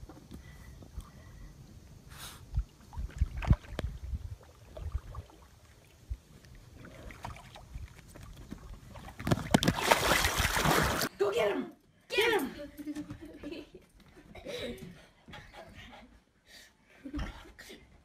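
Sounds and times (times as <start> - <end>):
water lapping: 2.6 - 11.1.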